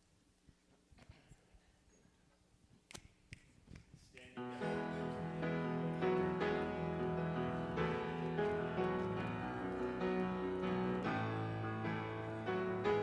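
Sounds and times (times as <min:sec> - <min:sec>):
piano playing chords: 0:04.4 - 0:13.0.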